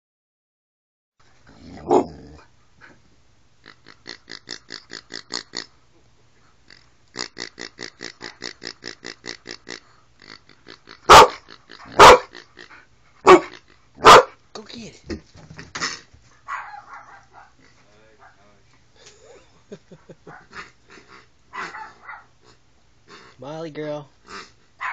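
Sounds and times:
dog barking: 1.8 - 2.2, 11.1 - 12.4, 13.2 - 14.4, 16.4 - 17.6, 18.2 - 18.5, 21.5 - 22.3.

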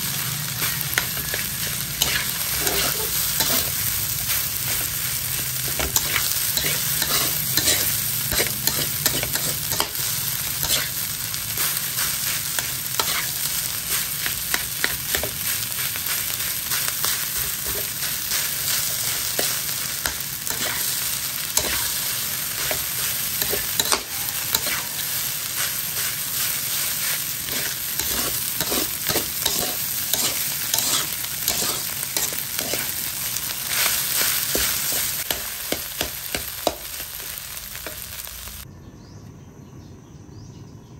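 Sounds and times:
rice sizzling in a wok: 0.0 - 38.7
metal spatula scraping a pan: 0.6 - 15.4, 16.8 - 33.0.

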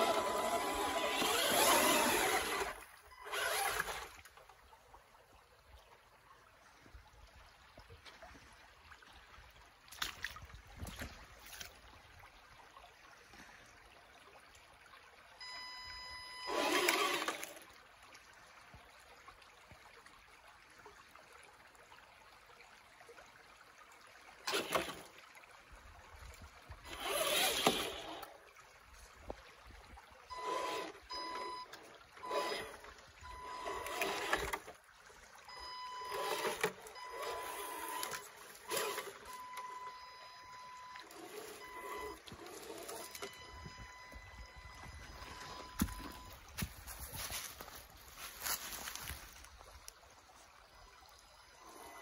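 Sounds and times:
splashing and rushing water: 0.0 - 4.8, 7.9 - 12.5, 24.4 - 52.0
creek water trickling: 0.0 - 52.0.

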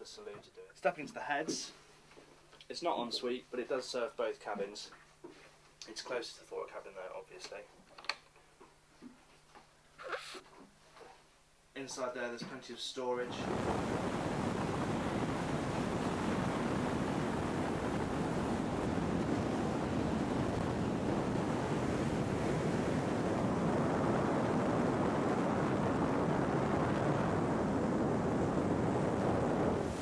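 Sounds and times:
boat rushing through choppy water: 13.3 - 30.0
wind buffeting microphone: 13.3 - 30.0.

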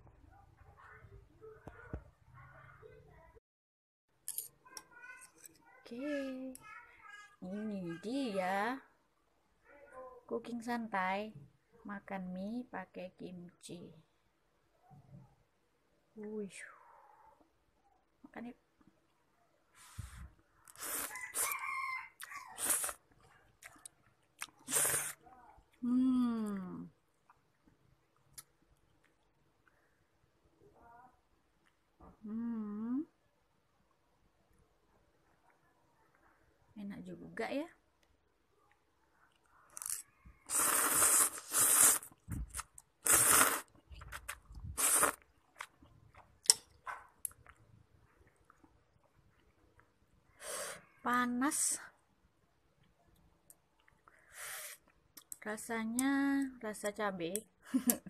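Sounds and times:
person biting and chewing noodles: 20.7 - 21.6, 22.2 - 25.2, 39.7 - 47.6
rooster crowing: 21.0 - 22.7.

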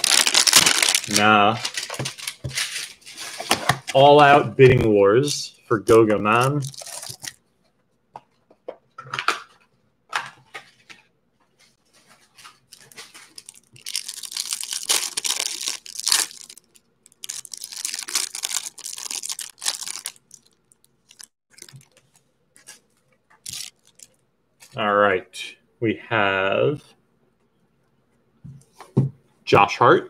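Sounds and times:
cellophane wrapper crinkling: 0.0 - 3.4, 6.3 - 7.4, 12.2 - 24.8.

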